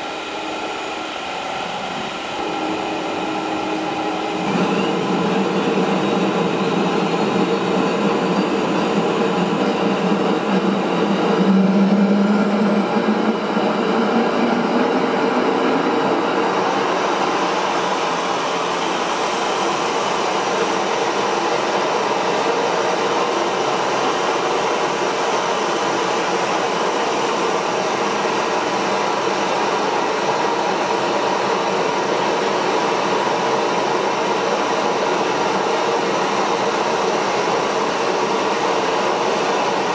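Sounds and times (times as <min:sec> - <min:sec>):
jet engine turbine whine: 0:00.0 - 0:39.9.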